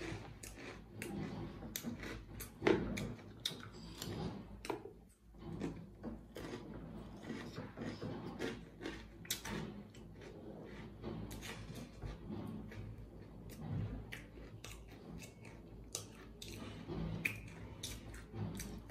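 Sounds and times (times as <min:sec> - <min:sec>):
crunching dry crumbs: 0:00.0 - 0:02.2.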